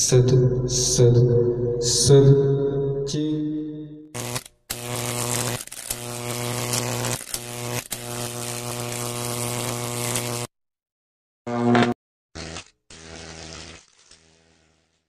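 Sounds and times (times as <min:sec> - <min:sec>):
electric buzzing and crackling: 0:04.2 - 0:10.5, 0:11.5 - 0:15.0.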